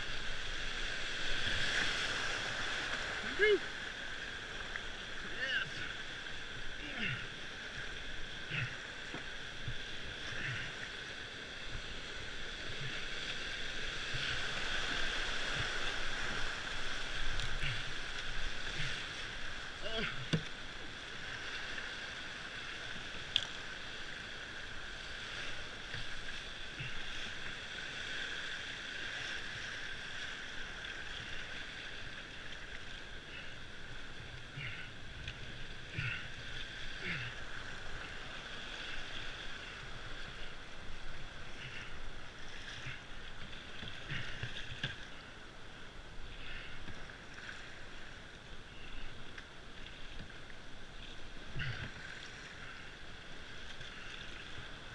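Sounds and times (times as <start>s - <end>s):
whitewater rapids rushing: 0.0s - 32.2s
paddle stroke splashes: 0.0s - 54.9s.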